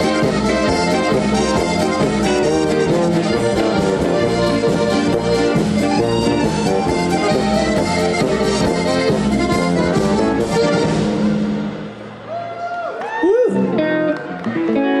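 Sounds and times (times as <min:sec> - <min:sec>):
polka music on accordions: 0:00.0 - 0:11.8
steady bass line: 0:00.0 - 0:12.3.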